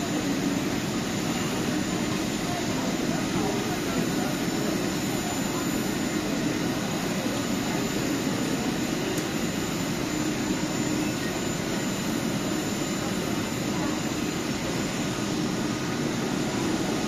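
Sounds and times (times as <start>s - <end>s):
murmur of passengers: 0.0s - 17.0s.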